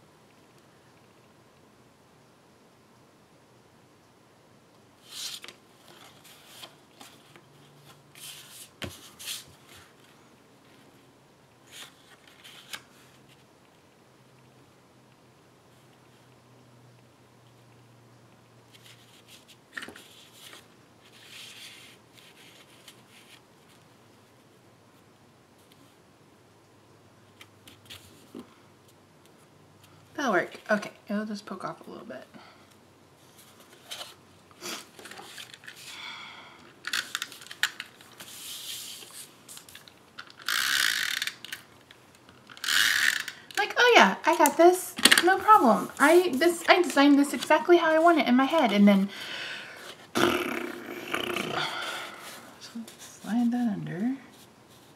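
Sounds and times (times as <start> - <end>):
paper rustling and scraping: 18.7 - 23.8, 37.0 - 39.9.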